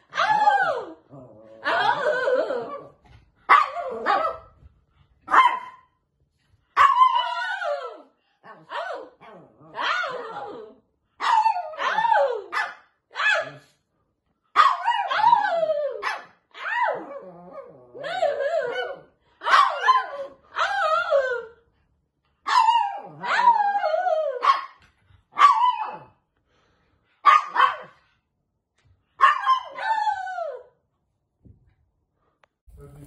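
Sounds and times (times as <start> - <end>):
small dog barking and yapping: 3.5 - 4.6, 5.2 - 5.9, 6.8 - 7.9, 14.5 - 17.0, 18.7 - 20.8, 22.4 - 26.1, 27.2 - 28.0, 29.2 - 30.1.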